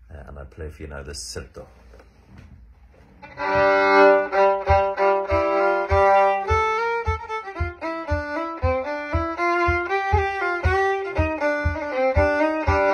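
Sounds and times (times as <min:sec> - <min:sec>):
solo fiddle dance tune: 0:03.1 - 0:12.9
low thump on the beat: 0:03.4 - 0:12.9.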